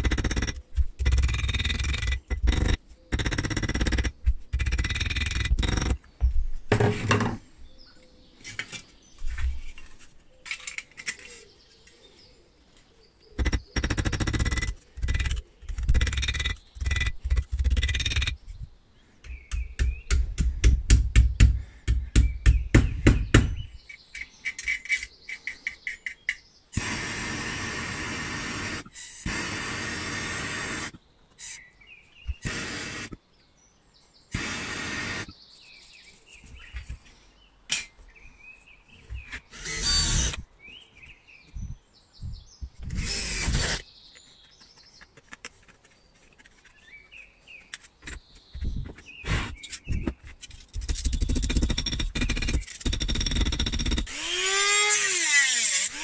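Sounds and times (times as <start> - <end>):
steady rasping noise: 0.0 - 6.0, 13.4 - 18.4.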